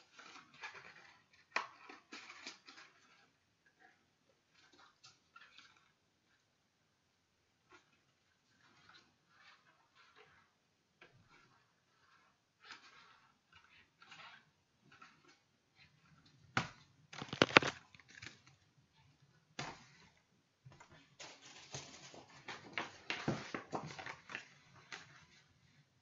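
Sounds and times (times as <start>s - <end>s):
paper sleeve and cd case rustling: 17.2s - 18.6s, 21.1s - 25.5s.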